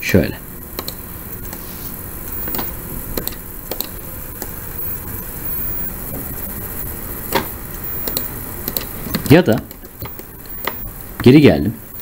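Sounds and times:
microphone hum and hiss: 0.0s - 12.0s
computer mouse clicks: 0.8s - 1.6s, 2.4s - 4.6s, 7.3s - 10.9s.

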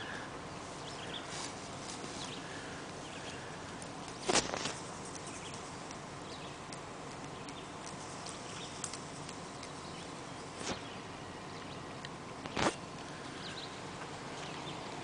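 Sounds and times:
steady hiss: 0.0s - 15.0s
faint bird chirps: 13.1s - 13.8s.

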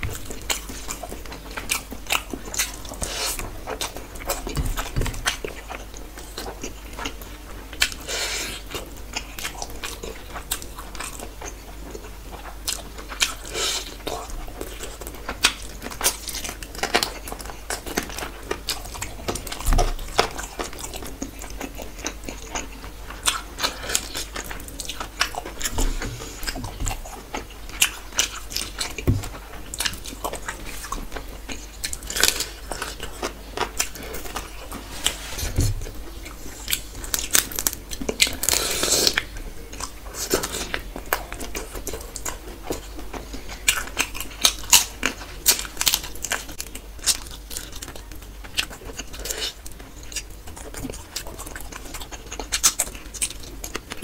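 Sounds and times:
person chewing crunchy food: 0.0s - 54.0s.

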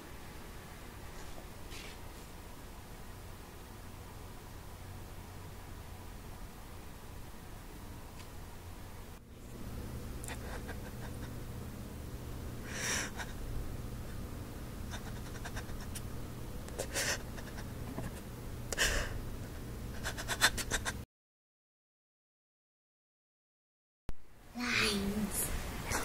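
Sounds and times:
low steady hum: 0.0s - 21.0s
person breathing out heavily: 12.6s - 13.3s, 18.8s - 19.2s.

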